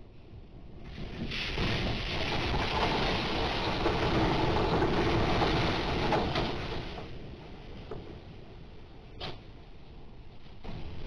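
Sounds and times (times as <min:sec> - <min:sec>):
seawater rushing across a patio: 0:00.8 - 0:07.2.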